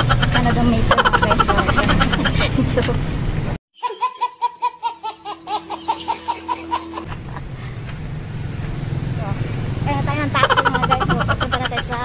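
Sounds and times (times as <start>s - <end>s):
baby giggling: 0.0s - 2.6s, 3.8s - 7.2s, 10.4s - 12.0s
motor tricycle rumbling: 0.0s - 3.6s, 5.8s - 12.0s.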